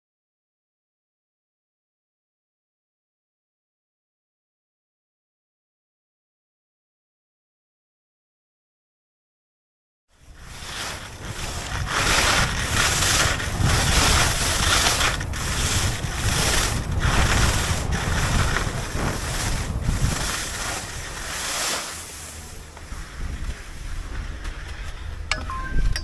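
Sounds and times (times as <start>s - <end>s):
skis scraping on snow: 10.1s - 25.3s
wind rumbling on microphone: 10.1s - 26.0s.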